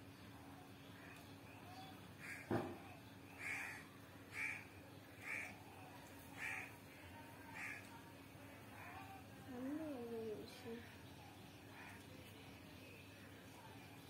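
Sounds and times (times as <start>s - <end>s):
crow cawing: 2.2s - 2.5s, 3.4s - 5.6s, 6.4s - 6.8s, 7.5s - 7.9s.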